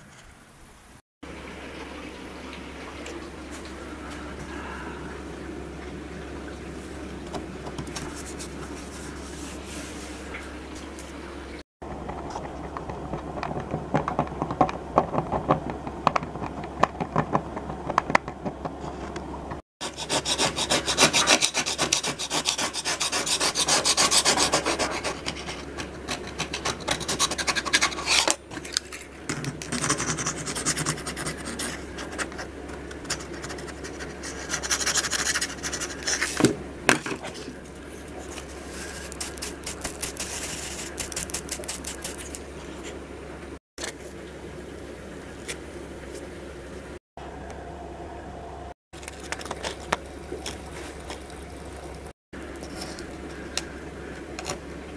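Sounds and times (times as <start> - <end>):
hand tool scraping chipboard: 19.8 - 28.4.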